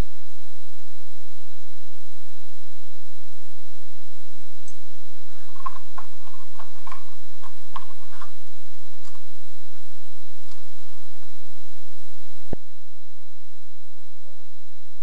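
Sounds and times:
faint clicks and taps: 4.7 - 9.4.

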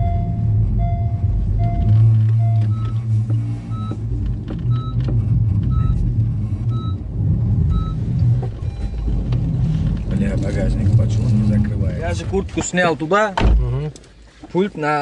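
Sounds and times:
electronic warning beeps: 0.0 - 3.0, 3.6 - 4.0, 4.7 - 5.0, 5.7 - 6.0, 6.7 - 7.0, 7.7 - 8.0, 8.6 - 9.2
car cabin low hum: 0.0 - 14.2.

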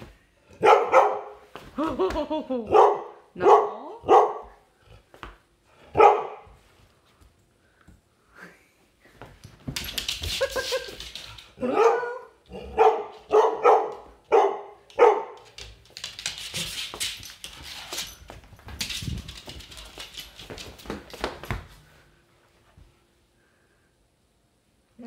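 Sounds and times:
dog barking: 0.6 - 1.4, 2.7 - 4.6, 5.9 - 6.4, 11.6 - 15.4
rustling and scuffling: 15.0 - 23.1.

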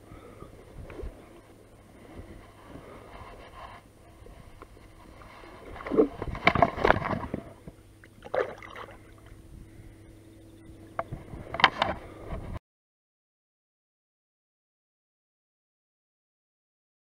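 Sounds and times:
water splashing: 5.1 - 9.3.

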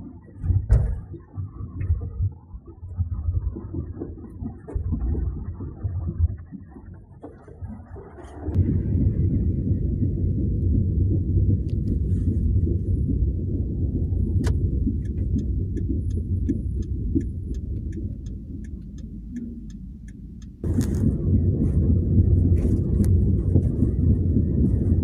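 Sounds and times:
car driving slowly: 11.7 - 25.0
light regular ticking: 14.0 - 20.8.

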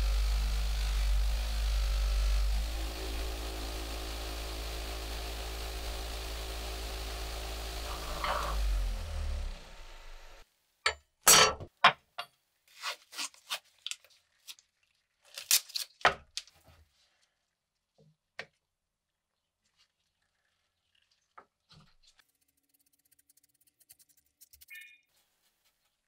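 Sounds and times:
bench buffer motor humming: 0.0 - 10.4.

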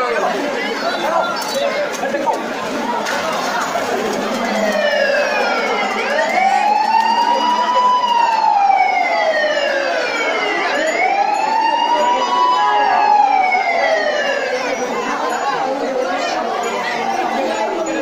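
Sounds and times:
background noise: 0.0 - 18.0
siren wailing: 4.1 - 15.0.

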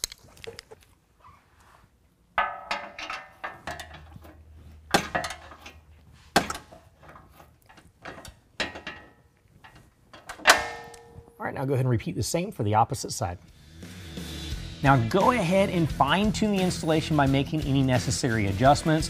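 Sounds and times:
wrenches clanking on metal: 2.4 - 11.2
sharp metallic knocks: 10.3 - 11.4.

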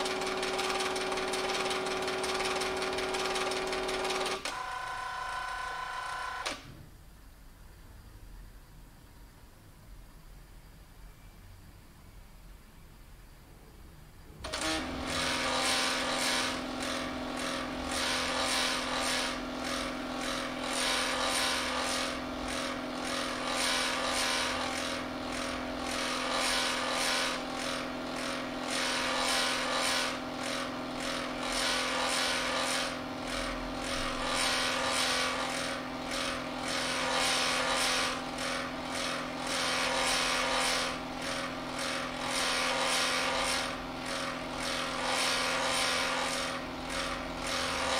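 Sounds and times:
scanner motor whirring: 2.2 - 6.6, 14.4 - 47.9.

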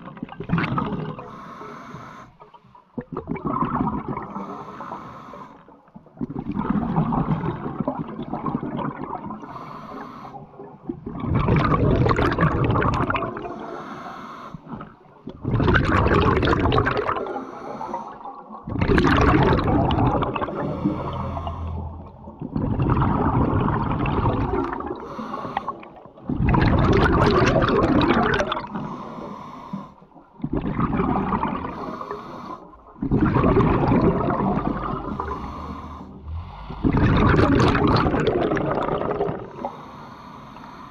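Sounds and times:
bubbling: 0.0 - 1.3, 2.9 - 4.4, 5.9 - 9.5, 10.7 - 13.5, 14.7 - 17.3, 18.2 - 28.8, 30.3 - 39.6
diver breathing through regulator: 1.2 - 2.4, 4.2 - 5.7, 9.4 - 10.5, 13.4 - 14.8, 17.2 - 18.2, 19.0 - 23.2, 24.9 - 26.0, 28.7 - 30.1, 31.6 - 38.7, 39.4 - 40.9.

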